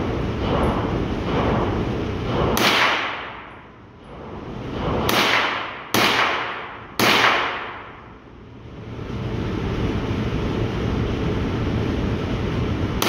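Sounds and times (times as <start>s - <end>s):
low steady rumble: 0.0s - 13.0s
rifle shots echoing: 2.3s - 3.5s, 5.1s - 8.0s.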